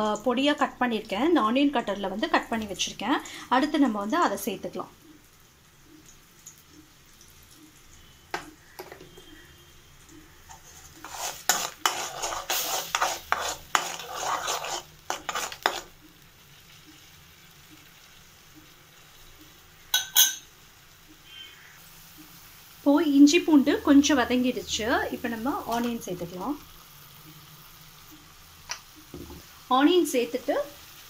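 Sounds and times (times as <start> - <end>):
paste frying in oil: 0.0 - 31.0
metal spatula scraping in pan: 10.4 - 16.0.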